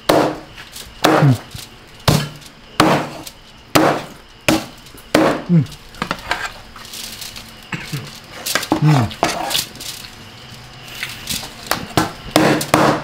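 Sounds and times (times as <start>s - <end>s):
knife chopping on wooden board: 0.1s - 0.4s, 1.0s - 1.4s, 2.1s - 3.2s, 3.8s - 5.4s, 12.0s - 13.0s.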